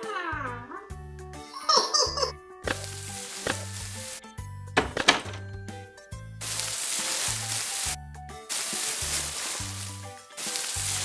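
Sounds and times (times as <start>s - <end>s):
squeaky cartoon voice: 0.0s - 1.0s, 1.6s - 2.4s
cartoon background music: 0.0s - 11.0s
sand being scooped and poured: 2.7s - 4.2s, 6.4s - 11.0s
sharp knocks: 4.8s - 5.5s.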